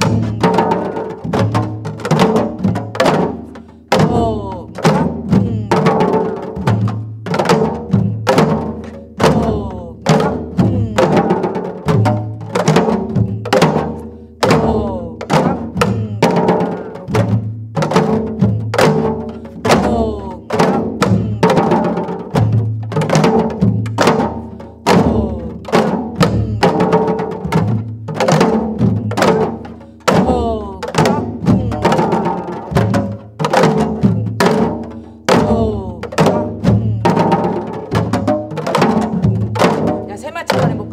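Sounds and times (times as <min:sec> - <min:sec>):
hourglass drums playing: 0:17.3 - 0:39.8.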